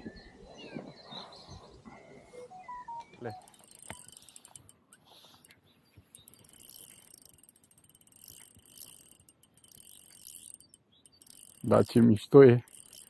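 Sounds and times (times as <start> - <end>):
fishing reel ticking: 3.4 - 13.0.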